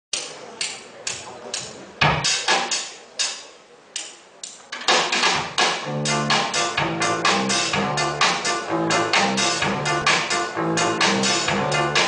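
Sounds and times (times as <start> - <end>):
drum kit hits with hall echo: 2.0 - 3.0, 4.8 - 12.0.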